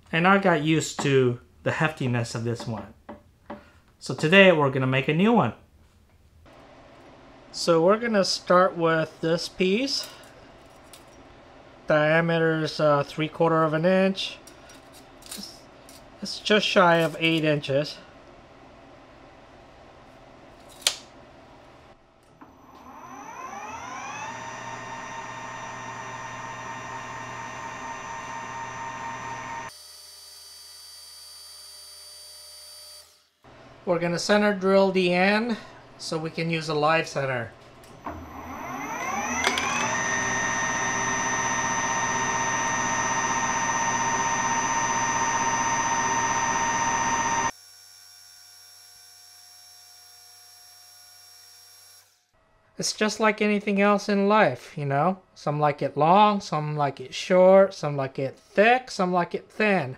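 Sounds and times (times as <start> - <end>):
sharp snap: 20.8 - 21.1
lathe spindle whine: 22.4 - 29.7, 38.0 - 47.5.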